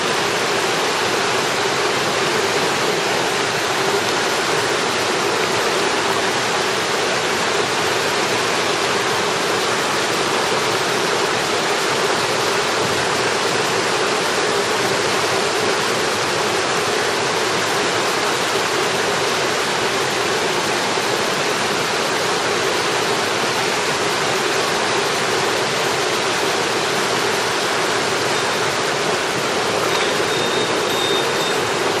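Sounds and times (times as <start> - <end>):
stream rushing over stones: 0.0 - 32.0.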